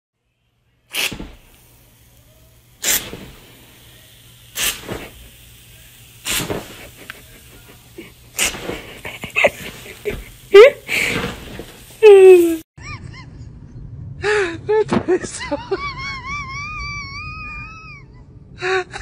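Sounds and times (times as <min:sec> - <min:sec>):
aerosol foam can spraying: 0:00.9 - 0:12.6.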